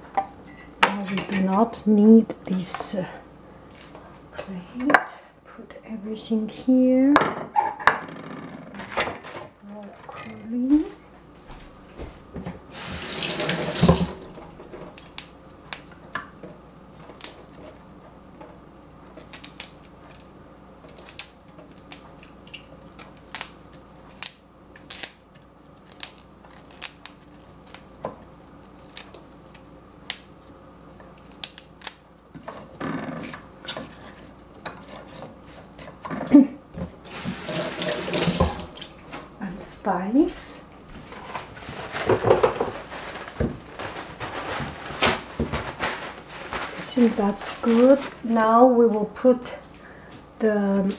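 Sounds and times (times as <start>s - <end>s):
kitchen tap running: 12.7s - 14.6s, 37.0s - 39.0s.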